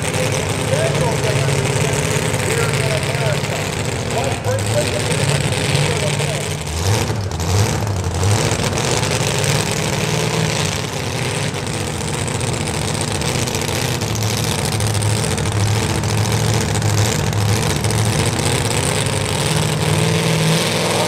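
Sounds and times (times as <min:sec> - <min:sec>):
supercharged engine idling: 0:00.0 - 0:21.0.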